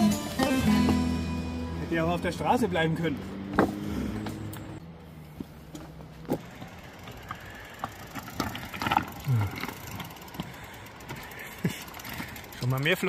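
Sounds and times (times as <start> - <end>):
bike rattling over rocks: 5.7 - 13.0.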